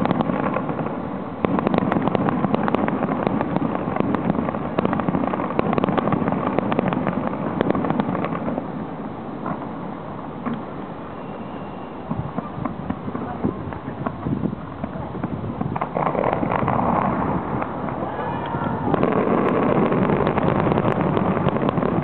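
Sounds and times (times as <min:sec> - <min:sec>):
continuous rumble: 0:00.0 - 0:22.0
fireworks bangs and crackling: 0:00.0 - 0:22.0.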